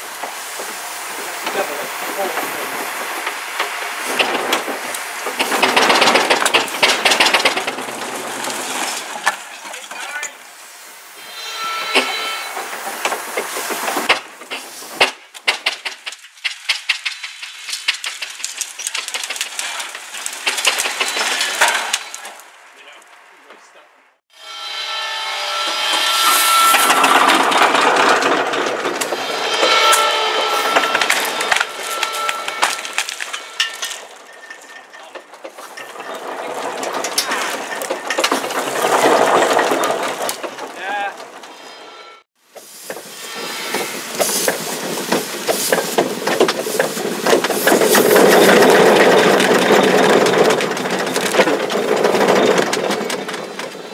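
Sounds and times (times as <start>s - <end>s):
branches rustling and scraping: 0.0s - 23.5s, 25.9s - 53.9s
dry branches cracking: 16.0s - 23.2s, 30.9s - 34.2s
roots and wood cracking: 16.0s - 23.2s, 30.7s - 41.1s, 45.3s - 53.9s.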